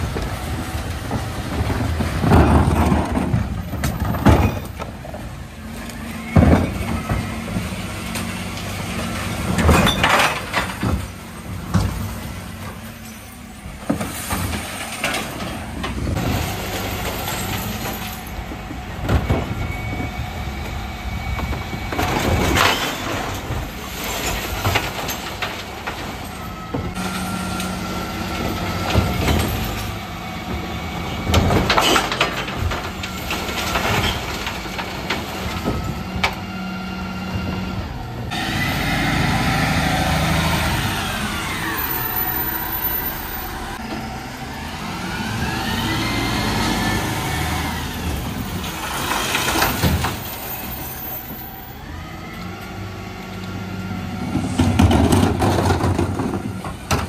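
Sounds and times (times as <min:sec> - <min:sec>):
truck engine whining: 0:00.0 - 0:57.0
bins tipped into garbage truck: 0:54.2 - 0:57.0.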